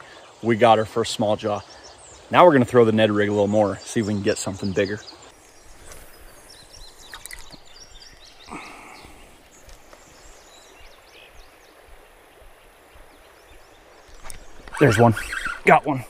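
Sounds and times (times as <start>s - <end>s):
small ticks: 9.4s - 10.2s.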